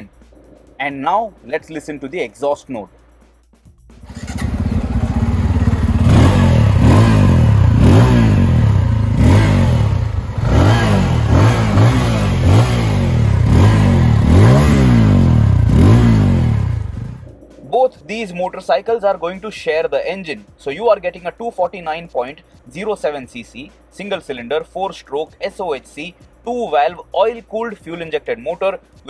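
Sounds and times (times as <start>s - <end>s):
motorcycle engine revving: 4.0s - 17.4s.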